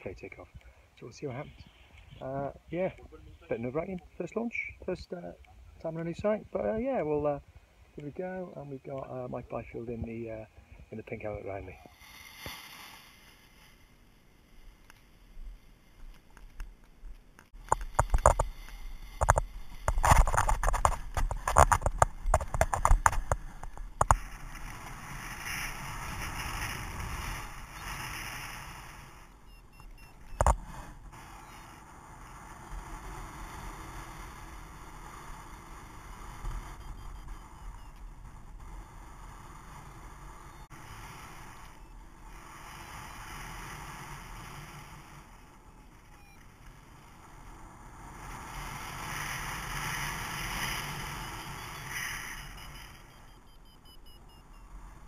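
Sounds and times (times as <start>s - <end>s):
knocks and scrapes on helmet: 19.2s - 24.2s.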